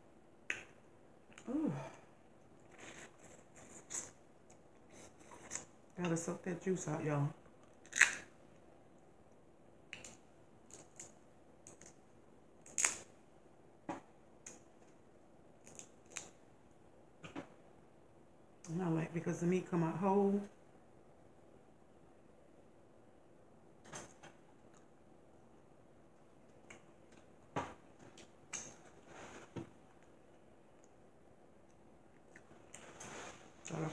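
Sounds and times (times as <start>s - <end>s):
crab shell cracking and snapping: 7.6s - 8.3s, 9.9s - 12.0s, 12.6s - 13.1s, 15.6s - 16.4s.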